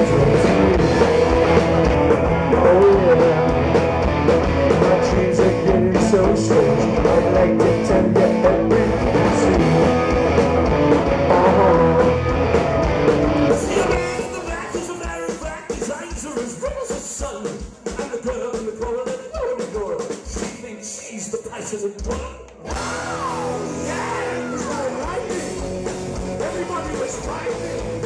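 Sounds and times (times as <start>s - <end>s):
person singing: 0.0s - 3.8s, 4.6s - 10.1s, 11.1s - 12.5s, 13.5s - 16.9s, 22.7s - 25.8s
electric guitars: 0.0s - 16.3s, 22.5s - 28.0s
live rock band playing: 0.0s - 28.0s.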